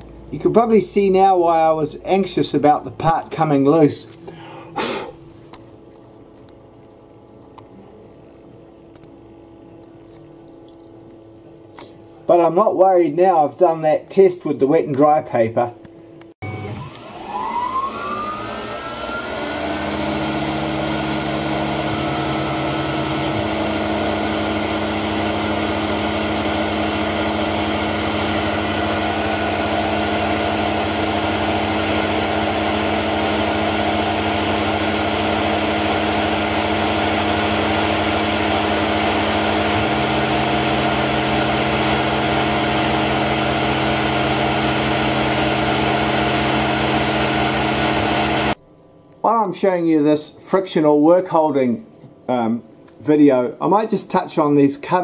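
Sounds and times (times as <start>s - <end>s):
milling machine hum: 16.4s - 48.6s.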